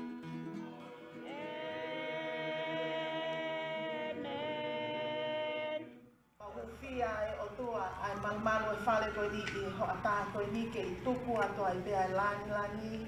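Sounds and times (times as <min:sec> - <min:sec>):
voices singing long held notes: 0:00.0 - 0:06.8.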